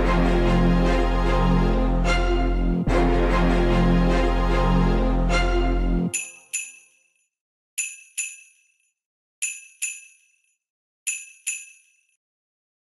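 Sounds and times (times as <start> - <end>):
small metal bell ringing: 6.1 - 12.2.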